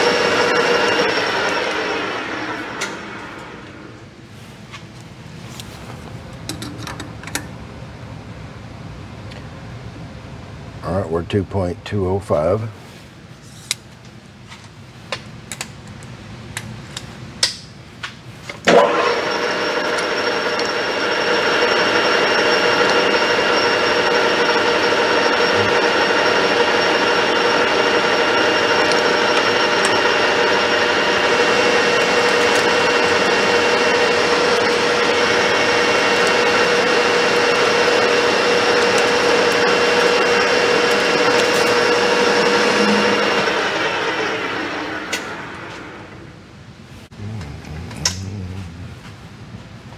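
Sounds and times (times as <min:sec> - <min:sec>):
lathe spindle whine: 0:00.0 - 0:04.0, 0:18.7 - 0:46.3.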